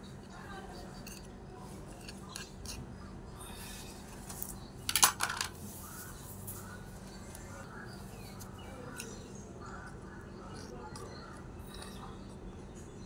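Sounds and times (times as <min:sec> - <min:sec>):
small utensil clinks and scrapes: 0:00.6 - 0:02.9.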